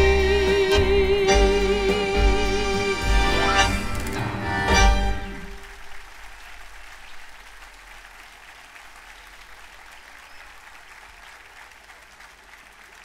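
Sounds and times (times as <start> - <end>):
audience applauding: 3.6 - 13.0.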